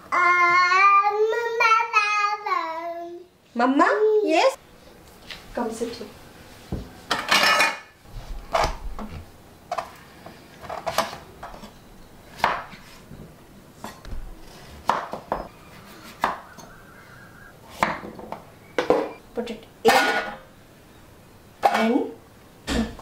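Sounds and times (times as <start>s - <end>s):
knife chopping on wooden board: 14.8s - 16.6s.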